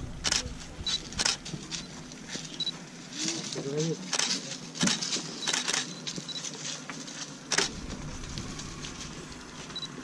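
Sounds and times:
camera focus beeps: 0:00.2 - 0:01.4, 0:05.4 - 0:06.5, 0:09.7 - 0:10.0
camera shutter clicks: 0:05.4 - 0:05.9, 0:07.5 - 0:07.7.

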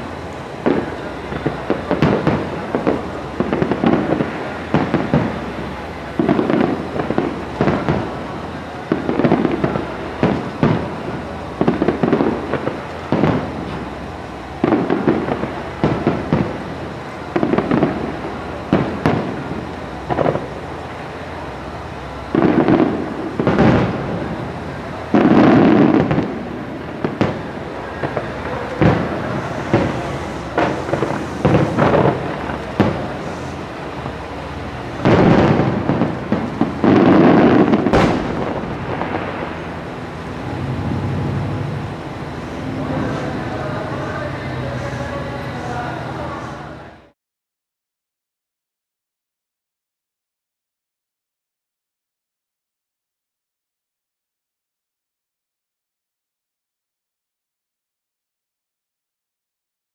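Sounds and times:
firework booms: 0:00.0 - 0:46.5
firework crackling: 0:00.0 - 0:47.1.

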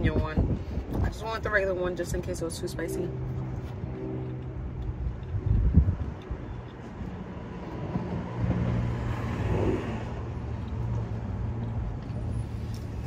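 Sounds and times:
broad noise swell: 0:00.5 - 0:10.5
engine humming: 0:00.8 - 0:13.0.

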